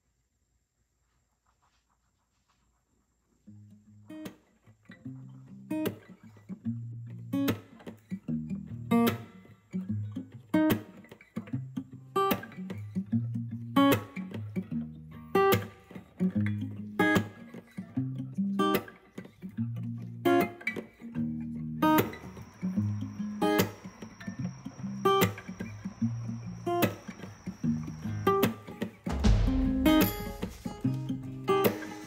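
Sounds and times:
guitar background music: 5.0 - 32.0.

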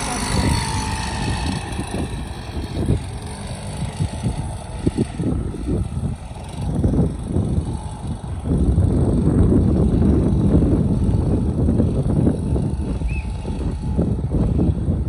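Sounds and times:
small motorcycle running: 0.0 - 15.0
wind buffeting microphone: 0.0 - 15.0.

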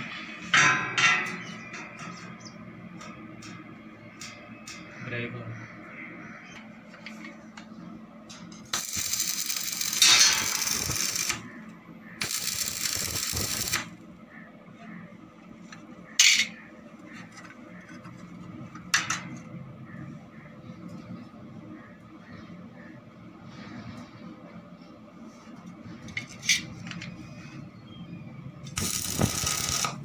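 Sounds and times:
arc welding crackle: 8.6 - 14.0, 28.7 - 30.0.

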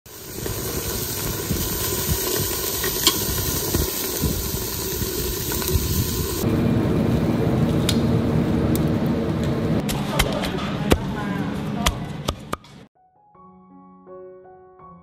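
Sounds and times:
meat sizzling on a grill: 0.1 - 7.7.

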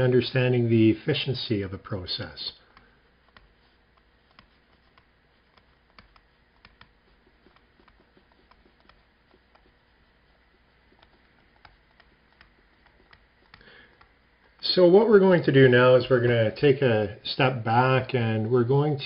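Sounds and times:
stylus tapping on tablet screen: 2.7 - 14.6.

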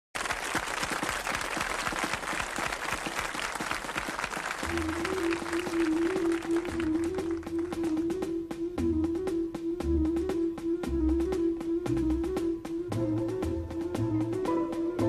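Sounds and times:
audience applauding: 0.2 - 8.2
music with held notes: 4.6 - 15.0.

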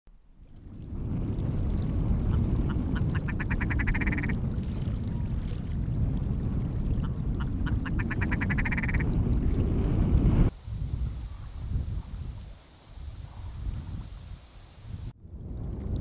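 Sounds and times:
wind rumble on microphone: 0.1 - 16.0
ptarmigan croaking calls: 2.2 - 4.4, 7.0 - 9.1.

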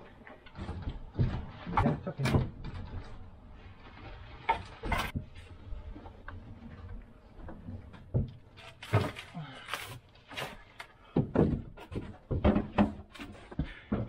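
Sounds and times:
wooden furniture knocking and thudding: 0.4 - 3.4, 7.4 - 9.2, 11.1 - 14.0.

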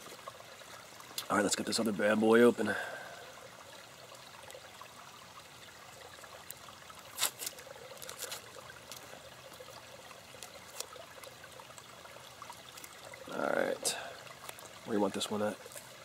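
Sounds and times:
trickling stream: 0.0 - 16.0
paper wrapper crinkling and ripping: 7.2 - 9.0.

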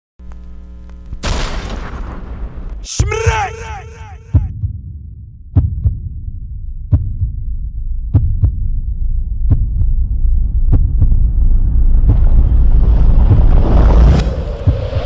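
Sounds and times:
heartbeat double thumps: 3.8 - 15.0
low rumbling drone: 4.3 - 15.0.

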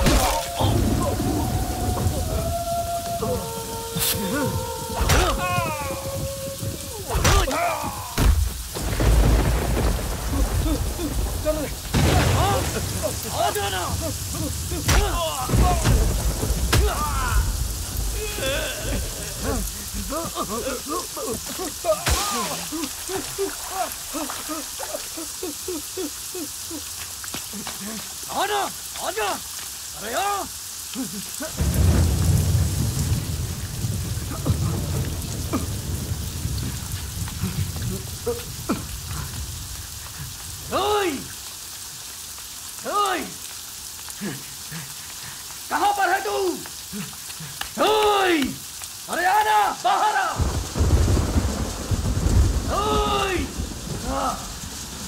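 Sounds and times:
person giving wordless cries: 0.0 - 8.3, 10.2 - 31.8, 40.2 - 41.4, 44.1 - 50.4, 52.6 - 54.6
heavy rain: 0.0 - 55.0
man sobbing: 0.7 - 8.2, 12.3 - 16.2, 16.9 - 28.1, 30.9 - 31.7, 44.2 - 45.5.

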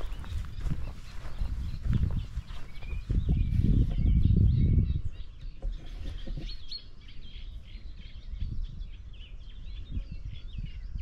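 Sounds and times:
songbirds singing: 0.0 - 11.0.

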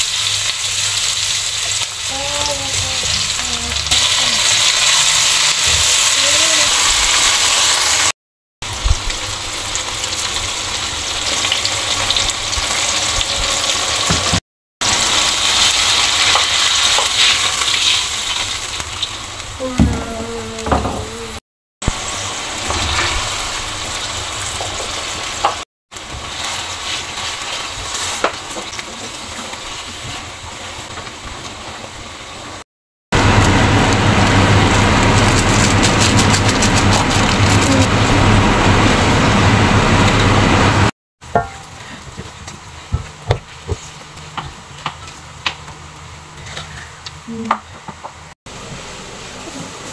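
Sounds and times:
food sizzling in oil: 0.0 - 19.8, 21.8 - 32.6
spatula stirring in a wok: 26.0 - 30.8.

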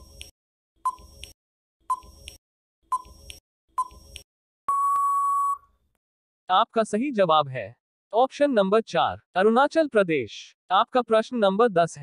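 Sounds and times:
countdown timer beeps: 2.9 - 5.6.

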